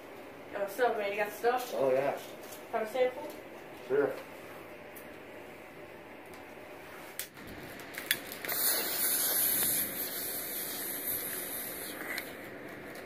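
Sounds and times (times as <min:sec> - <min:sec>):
lighter gas hissing: 0:07.0 - 0:13.0.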